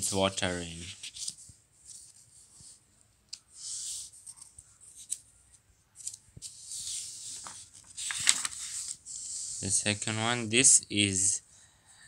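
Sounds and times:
paper rustling: 0.6 - 2.8, 6.0 - 9.6.

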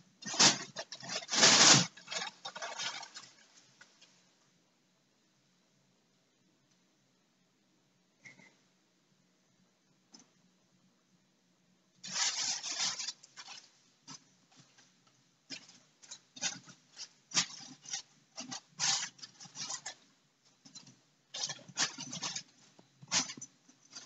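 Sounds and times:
plastic bag crinkling: 0.2 - 3.9, 12.0 - 14.8, 15.5 - 20.1, 20.7 - 24.0.

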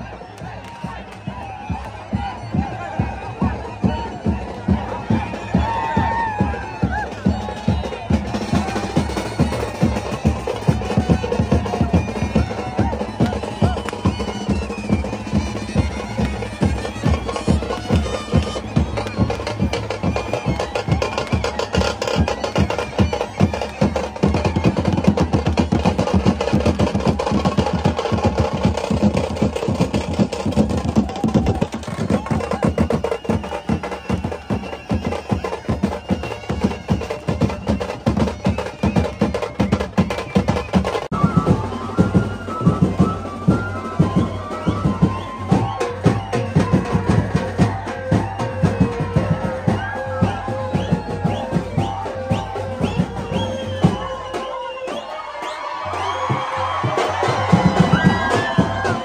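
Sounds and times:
drums beating a fast rhythm: 0.0 - 59.0.

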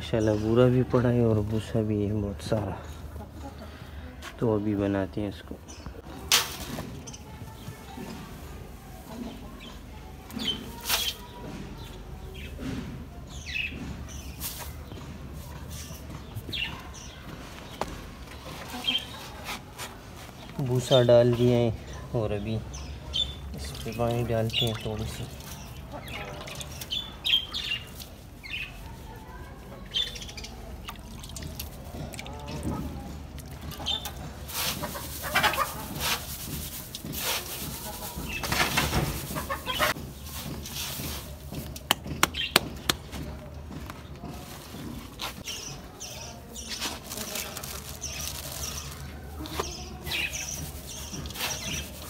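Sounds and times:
birds chirping and squawking: 20.4 - 31.2, 31.8 - 42.8, 44.2 - 52.0
straw chaff rustling into tub: 23.4 - 41.9, 44.2 - 52.0
chicken calls: 33.7 - 36.6, 37.2 - 40.4.

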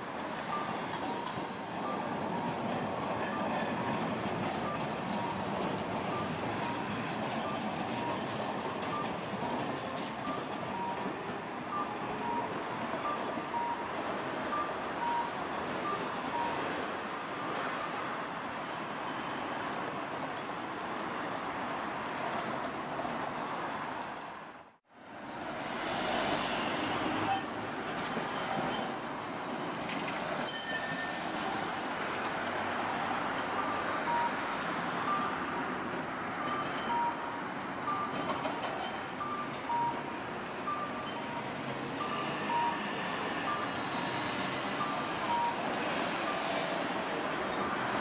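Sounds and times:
streetcar passing: 0.0 - 48.0
bus passing close by: 24.4 - 28.3.

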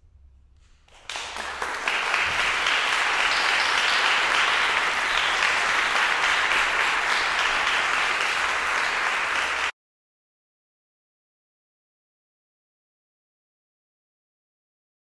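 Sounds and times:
audience applauding: 0.9 - 9.7.

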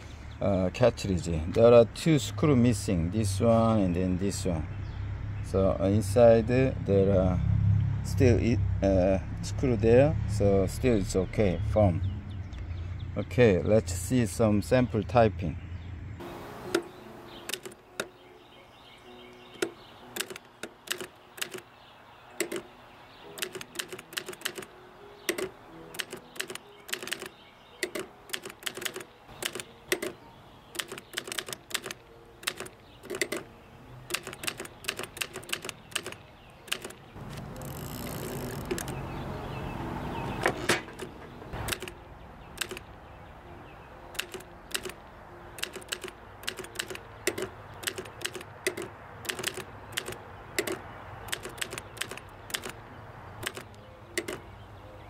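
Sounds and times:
typewriter typing: 17.4 - 18.1, 19.6 - 21.6, 22.4 - 22.7, 23.3 - 24.7, 25.3 - 33.5, 34.1 - 39.0, 40.7 - 42.0, 42.6 - 42.9, 44.2 - 45.0, 45.6 - 52.8, 53.4 - 54.4.

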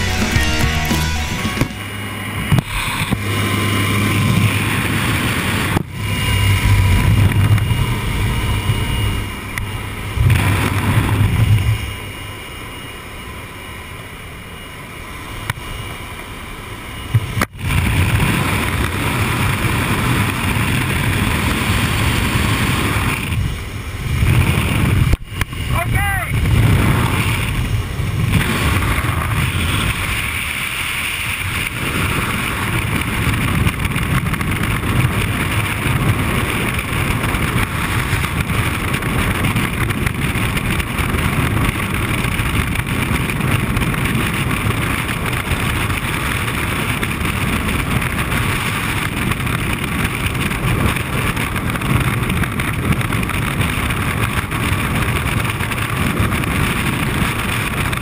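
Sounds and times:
wind rushing over microphone: 1.8 - 58.0.

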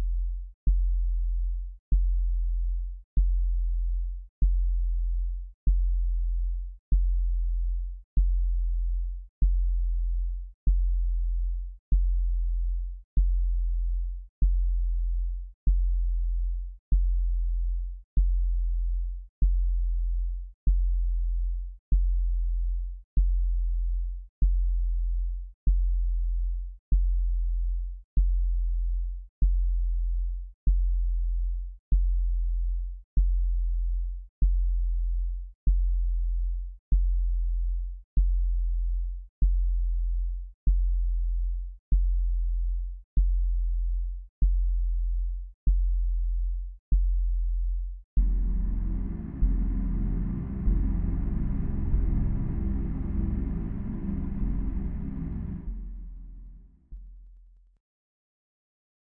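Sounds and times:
low electronic tone pulsing: 48.2 - 56.8.

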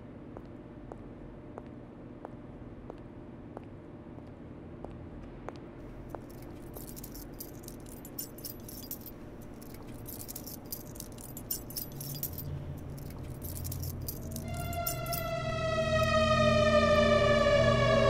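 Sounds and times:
low steady hum: 5.9 - 17.6
keys jangling: 6.0 - 16.1.

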